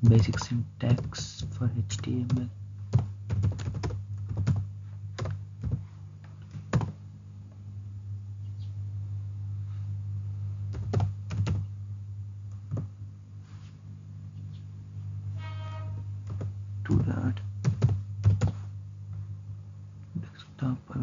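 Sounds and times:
low hum: 0:00.0 - 0:21.0
keyboard keystrokes: 0:03.0 - 0:04.6, 0:10.7 - 0:11.6, 0:16.3 - 0:18.6.

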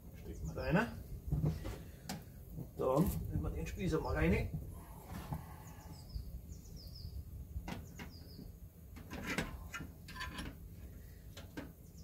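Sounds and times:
small birds chirping: 0:00.1 - 0:01.9, 0:02.9 - 0:08.9, 0:11.7 - 0:12.0
metal clicks and knocks: 0:09.0 - 0:10.6.

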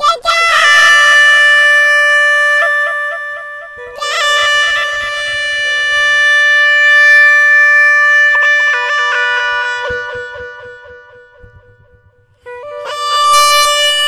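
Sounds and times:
instrumental music: 0:00.0 - 0:14.0.

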